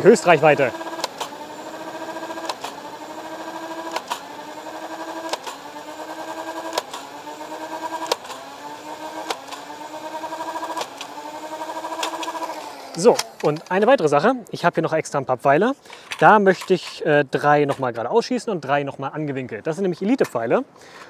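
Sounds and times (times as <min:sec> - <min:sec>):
blaster motor whining: 0:00.0 - 0:13.5
dart firing clicks: 0:03.8 - 0:04.2, 0:08.0 - 0:08.4.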